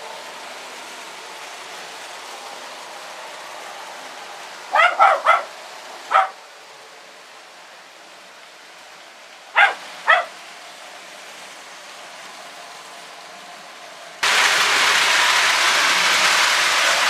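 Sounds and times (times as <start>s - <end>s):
toy trains whirring on track: 0.0s - 17.0s
dog barking: 4.7s - 5.5s, 6.1s - 6.4s, 9.6s - 10.4s.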